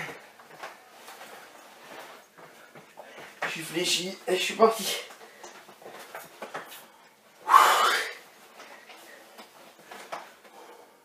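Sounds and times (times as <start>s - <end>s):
man exhaling with effort: 7.5s - 8.2s.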